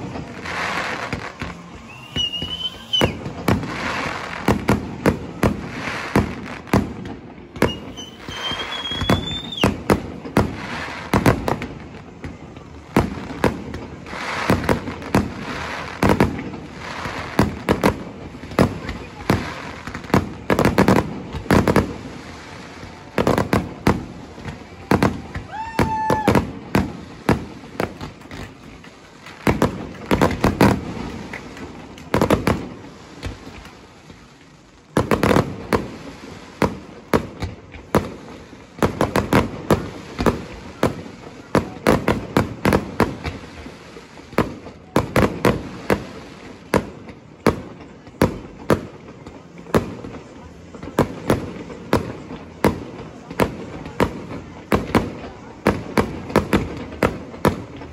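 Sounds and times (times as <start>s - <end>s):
fireworks bangs and crackles: 0.0s - 57.9s.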